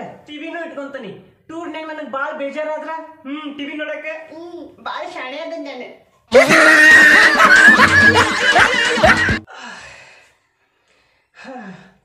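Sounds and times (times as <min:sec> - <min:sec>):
snickering laughter: 0:06.4 - 0:09.4
music: 0:07.1 - 0:09.4.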